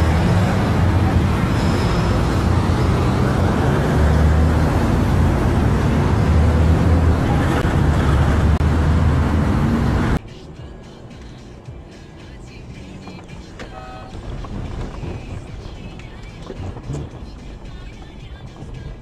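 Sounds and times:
highway traffic rumble: 0.0 - 19.0.

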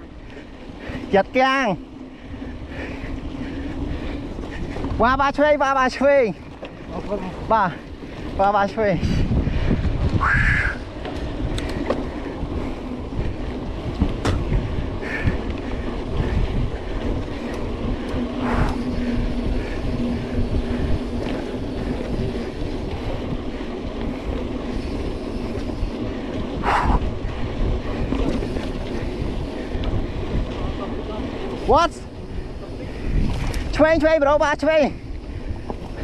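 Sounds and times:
bike tyres rattling over dirt: 0.0 - 36.0
wind on microphone: 7.4 - 34.0
bike knocking over bumps: 14.0 - 14.7.

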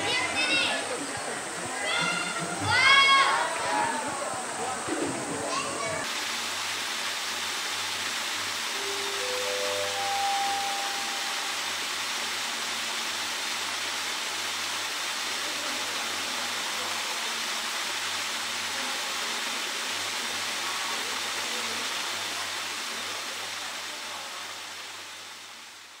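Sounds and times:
water jet spraying from pipe: 0.0 - 26.0
brief rising notes: 8.7 - 11.7.

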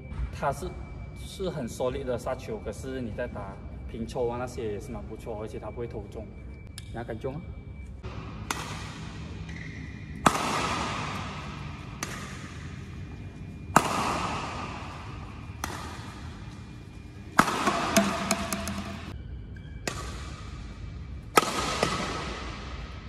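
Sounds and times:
racquet hitting shuttlecock: 8.1 - 19.2, 19.8 - 20.5, 21.3 - 22.9.

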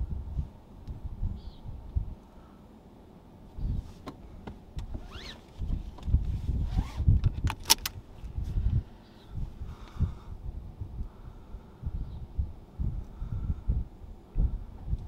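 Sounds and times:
wind rumbling on microphone: 0.0 - 2.5, 3.5 - 15.0
short squeaky glide: 4.9 - 5.5
sharp clicks: 7.2 - 8.0.

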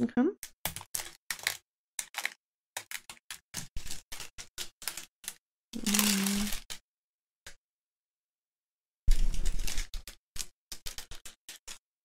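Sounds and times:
plastic bags crinkling: 0.7 - 6.8
person humming: 5.8 - 6.6.

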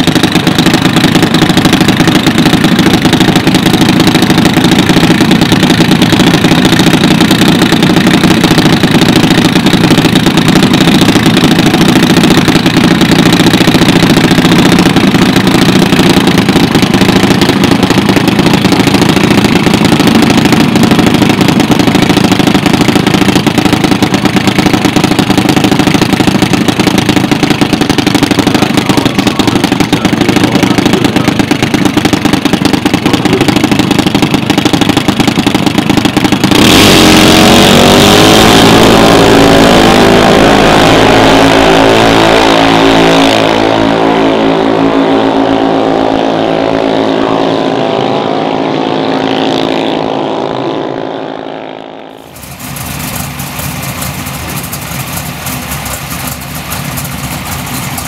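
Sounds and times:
single-cylinder engine idling: 0.0 - 39.1, 52.2 - 58.0.

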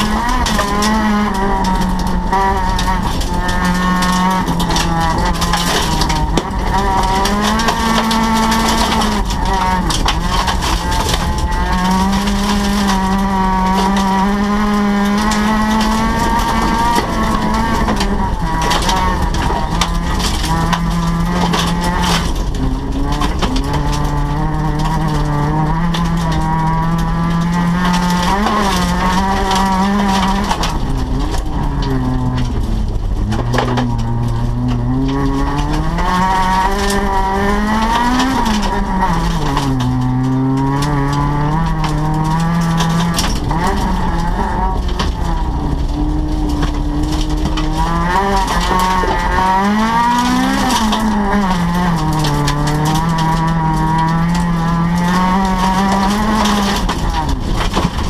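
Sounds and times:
rally car engine revving: 0.0 - 58.0.

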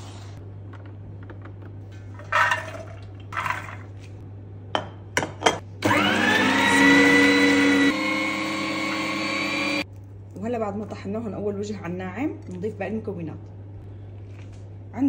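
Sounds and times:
electric meat grinder motor whine: 5.8 - 9.8.

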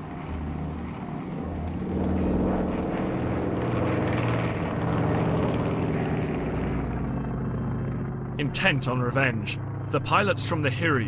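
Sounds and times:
propeller aircraft engine droning: 0.0 - 11.0.

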